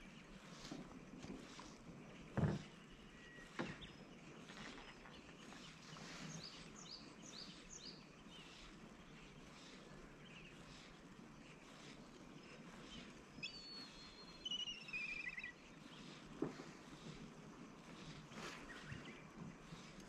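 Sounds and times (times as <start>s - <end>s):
dull thump: 2.3s - 2.7s
high quick bird chirps: 13.4s - 16.0s.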